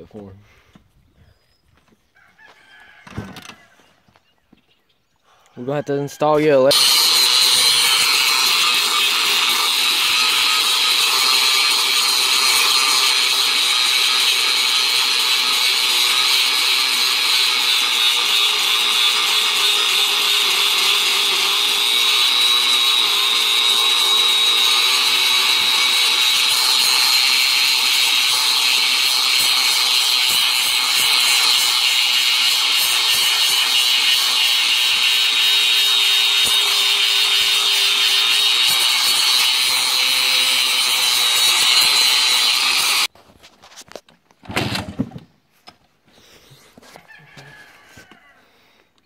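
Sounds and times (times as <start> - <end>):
angle grinder grinding metal: 6.2 - 43.1.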